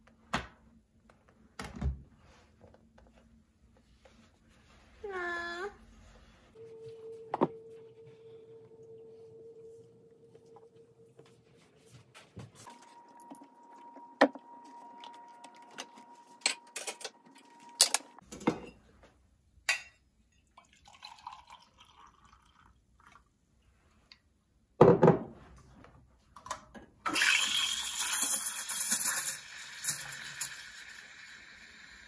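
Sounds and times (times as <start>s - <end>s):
milk pouring into metal pitcher: 20.6s - 23.2s.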